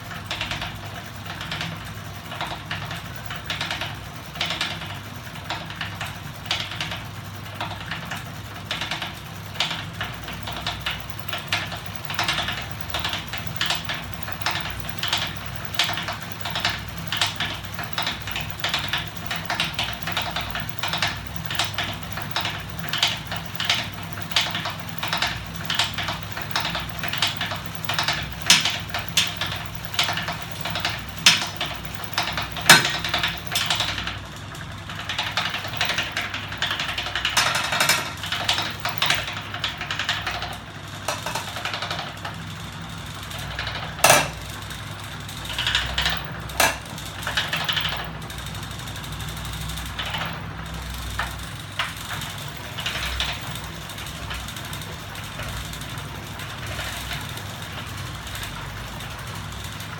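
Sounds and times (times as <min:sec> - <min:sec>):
metallic clicks and ticks: 0:10.0 - 0:34.1.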